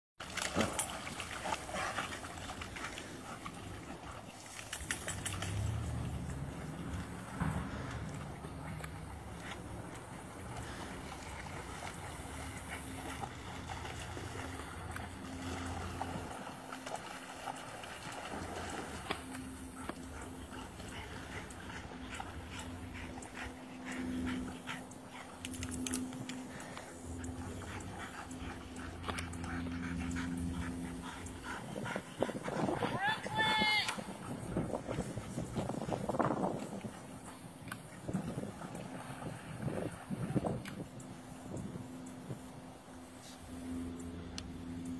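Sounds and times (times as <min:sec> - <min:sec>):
dog splashing through water: 0:00.2 - 0:23.0
dog panting: 0:19.2 - 0:33.1.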